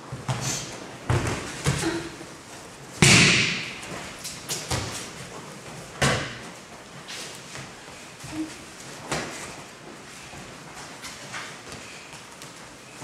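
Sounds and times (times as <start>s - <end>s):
bodies landing on mat: 1.0s - 2.2s.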